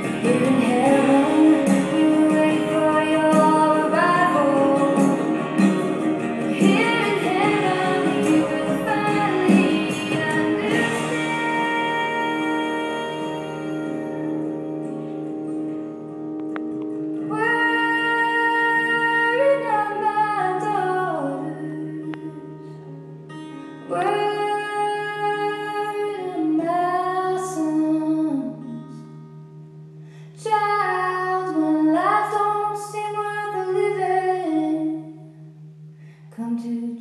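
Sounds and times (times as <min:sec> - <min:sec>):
person singing long notes: 0:00.0 - 0:14.6.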